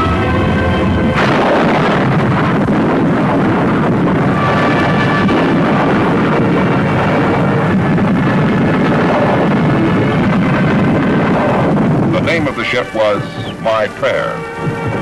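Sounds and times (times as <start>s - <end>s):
loud crash: 1.2s - 10.1s.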